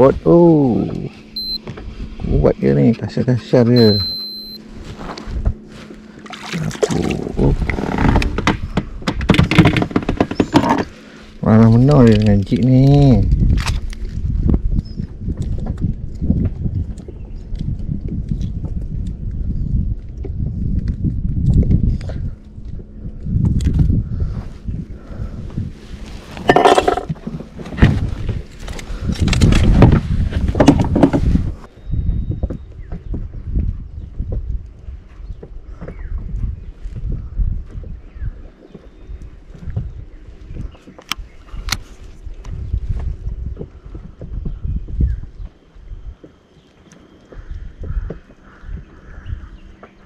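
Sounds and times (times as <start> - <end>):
wind rumble on microphone: 0.0 - 50.0
hard knocks and clinks: 26.5 - 27.1
clattering rattle: 26.5 - 27.2.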